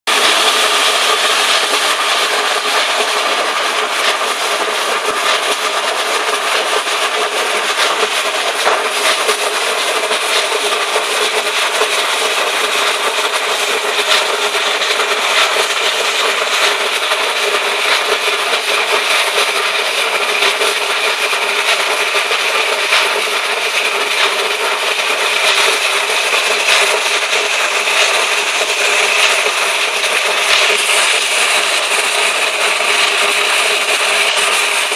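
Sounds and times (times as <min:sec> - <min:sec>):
concrete floor grinder: 0:00.1 - 0:34.9.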